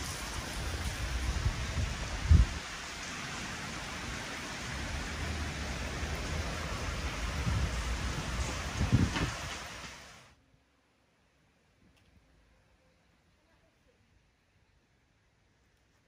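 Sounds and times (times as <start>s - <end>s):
rain falling on paving: 0.0s - 10.4s
thump: 9.0s - 9.6s.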